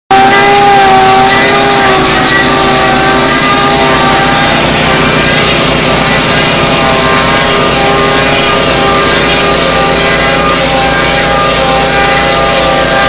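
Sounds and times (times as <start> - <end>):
log lathe cutting wood: 0.1 - 13.0
machinery hum: 0.1 - 13.0.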